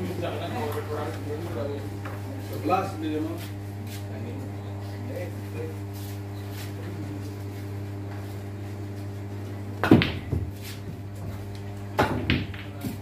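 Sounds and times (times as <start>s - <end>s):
steady low hum: 0.0s - 13.0s
pool balls clacking: 9.8s - 13.0s.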